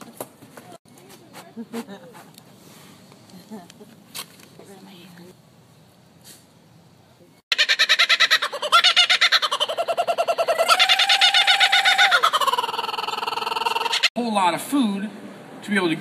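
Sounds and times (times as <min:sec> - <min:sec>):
kookaburra laughing call: 0:07.5 - 0:14.1.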